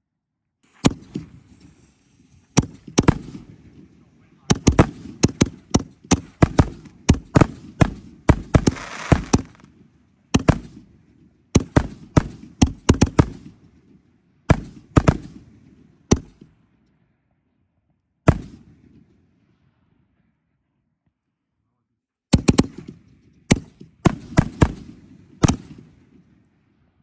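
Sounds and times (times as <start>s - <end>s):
firework crackling: 8.5s - 9.7s
firework shells banging: 8.6s - 9.7s.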